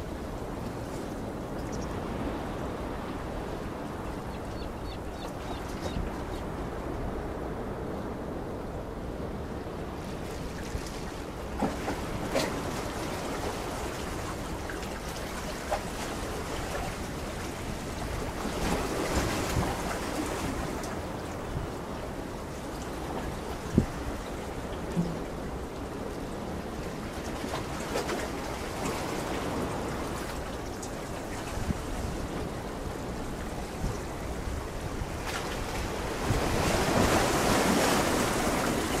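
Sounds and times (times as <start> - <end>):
wind rumble on microphone: 0.0 - 39.0
sea water washing: 9.9 - 39.0.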